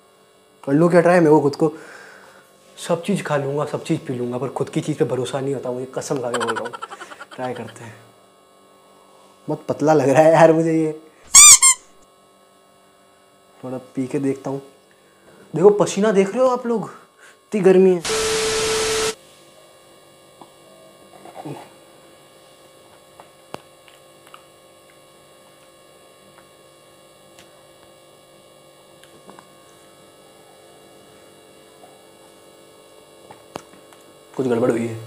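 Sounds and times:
faint electrical mains hum: 0.0s - 35.0s
tv static with test tone: 18.0s - 19.2s.

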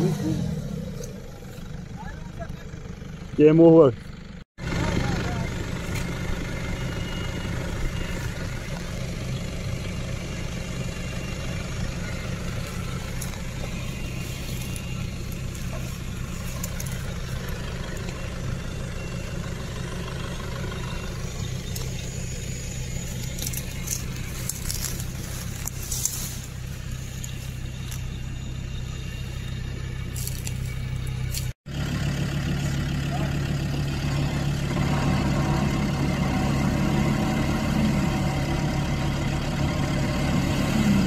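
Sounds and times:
truck engine idling: 0.0s - 41.0s
brushing and rustling: 12.6s - 17.6s, 23.0s - 28.0s.

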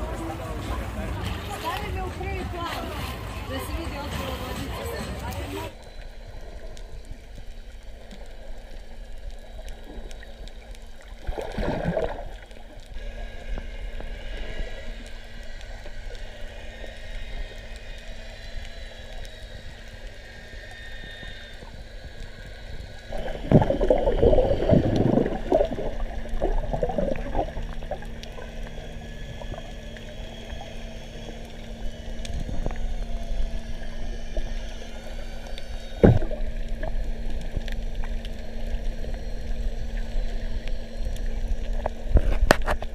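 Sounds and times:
faint steady hum: 0.0s - 42.9s
muffled underwater wash: 0.0s - 42.9s
gurgling bubble bursts: 11.2s - 12.4s, 23.0s - 29.8s, 36.0s - 37.5s.

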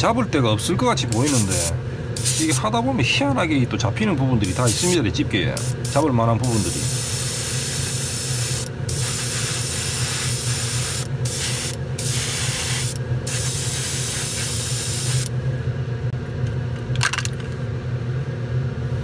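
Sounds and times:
steady low hum: 0.0s - 19.0s
airbrush spraying hiss: 1.1s - 2.6s, 4.4s - 5.0s, 5.6s - 15.3s.

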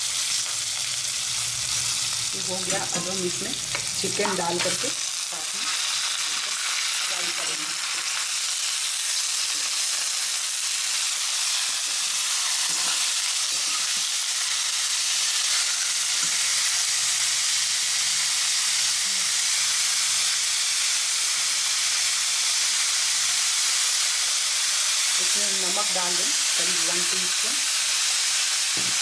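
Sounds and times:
chicken sizzling in hot oil: 0.0s - 29.0s
metal spatula stirring: 2.6s - 5.0s, 12.6s - 14.0s.

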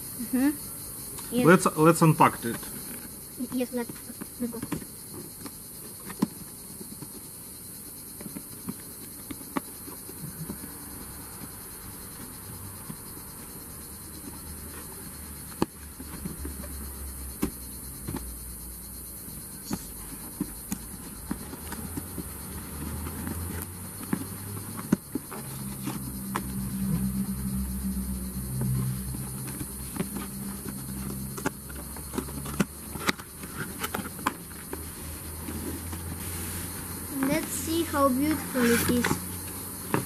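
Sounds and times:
cardboard box rustling and bumps: 19.8s - 26.5s.

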